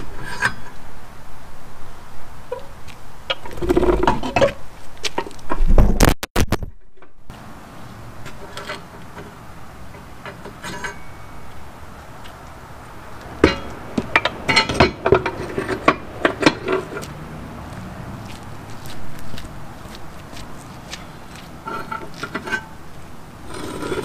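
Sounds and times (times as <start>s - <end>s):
metal clanks and clinks: 9.9s - 11.5s, 13.4s - 17.1s, 21.6s - 22.8s.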